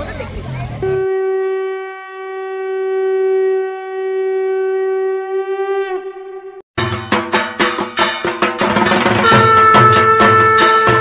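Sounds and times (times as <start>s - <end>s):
conch shell blown: 0.8s - 6.6s, 8.8s - 11.0s.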